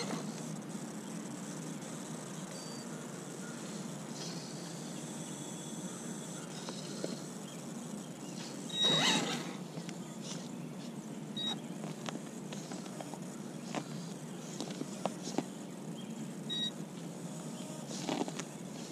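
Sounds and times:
toy truck electric motor whirring: 8.7 - 9.6.

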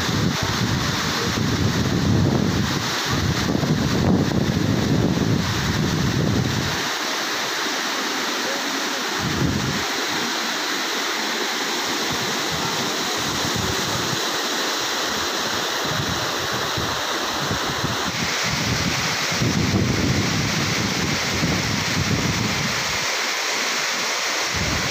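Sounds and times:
waterfall and stream rushing: 0.0 - 24.9
wind buffeting microphone: 0.1 - 6.8.

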